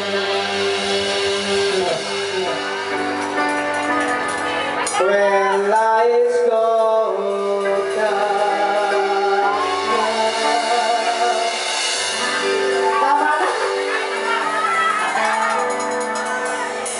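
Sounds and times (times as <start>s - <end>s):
live rock band playing: 0.0s - 16.9s
singer holding long notes: 4.5s - 16.9s.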